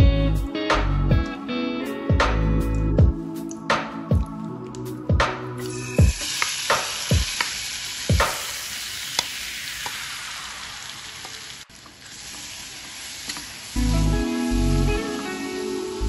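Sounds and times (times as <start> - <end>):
food sizzling in hot oil: 5.6 - 16.0.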